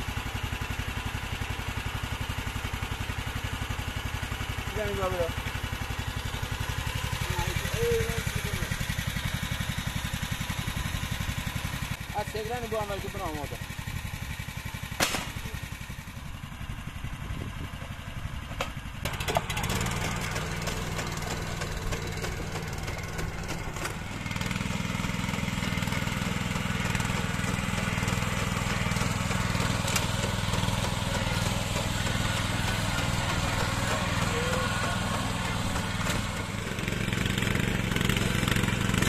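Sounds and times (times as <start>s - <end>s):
small engine running: 0.0s - 39.0s.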